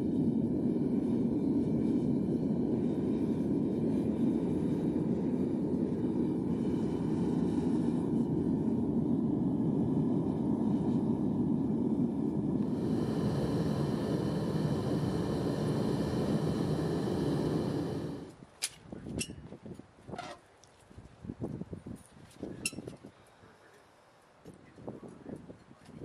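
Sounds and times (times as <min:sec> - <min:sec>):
furnace burner rushing: 0:00.0 - 0:18.4.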